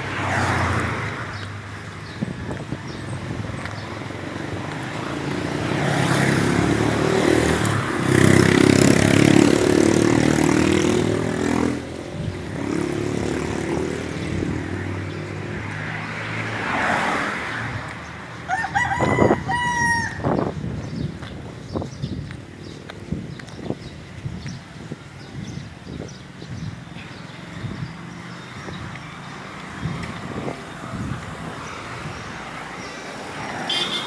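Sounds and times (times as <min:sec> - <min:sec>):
vehicle engine passing: 0:04.6 - 0:18.2
rooster crowing: 0:18.5 - 0:20.3.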